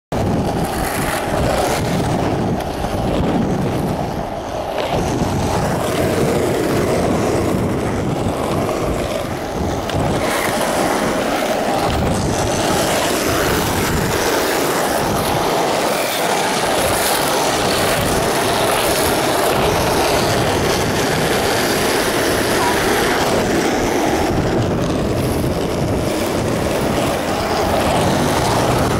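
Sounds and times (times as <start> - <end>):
skateboard wheels rolling on asphalt: 0.1 - 28.9
wind on microphone: 0.1 - 28.9.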